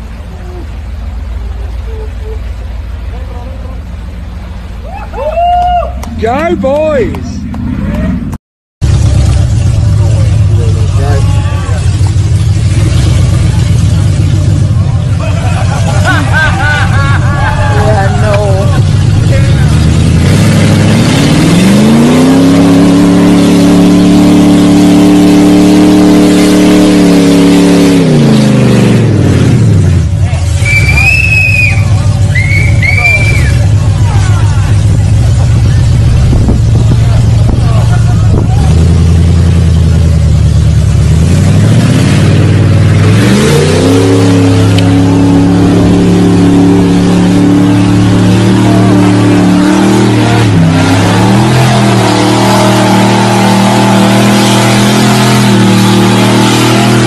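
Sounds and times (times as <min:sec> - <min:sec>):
truck engine revving: 0:00.0 - 0:57.0
truck ploughing through water: 0:00.0 - 0:57.0.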